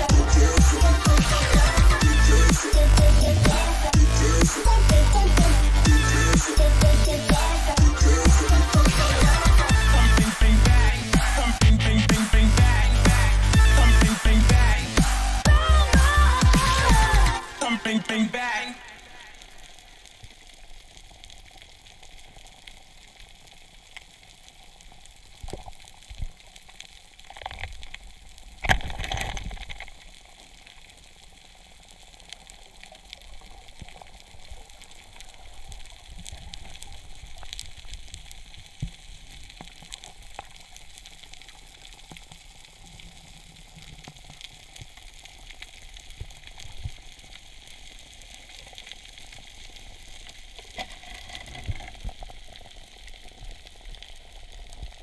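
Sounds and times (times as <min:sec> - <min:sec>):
underwater crackling clicks: 0:20.2 - 0:55.0.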